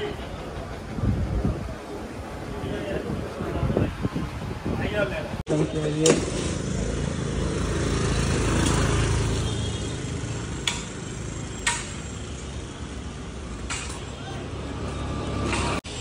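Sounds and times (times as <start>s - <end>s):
sharp knocks: 10.6s - 12.1s.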